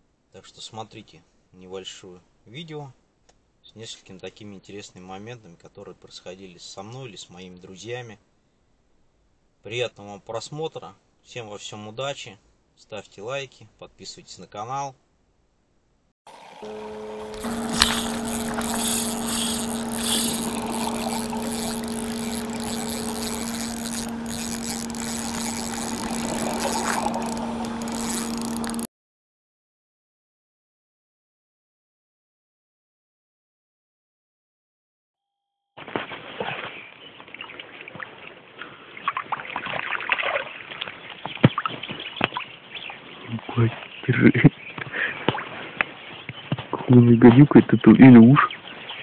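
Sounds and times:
water rushing and splashing: 0:16.3 - 0:28.9, 0:37.2 - 0:41.1
steady low hum: 0:16.4 - 0:28.9.

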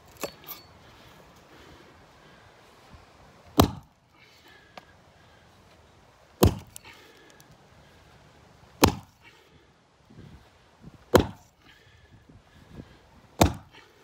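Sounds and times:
axe chopping wooden beam: 0:03.5 - 0:03.9, 0:06.4 - 0:06.8, 0:08.8 - 0:09.2, 0:11.1 - 0:11.5, 0:13.4 - 0:13.8.

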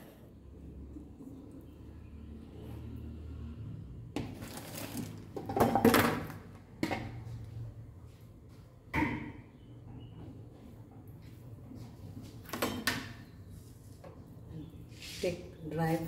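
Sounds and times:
dishes clattering and scraping: 0:04.7 - 0:06.3.

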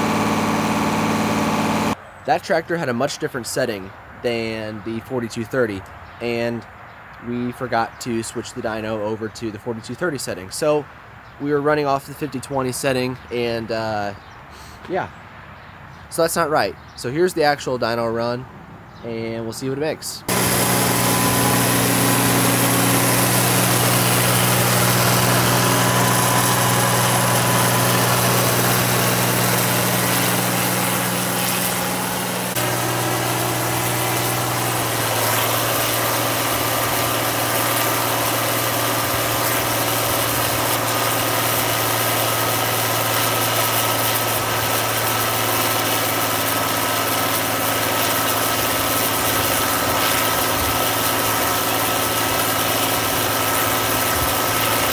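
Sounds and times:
diesel engine running: 0:00.0 - 0:02.0, 0:20.3 - 0:54.9.

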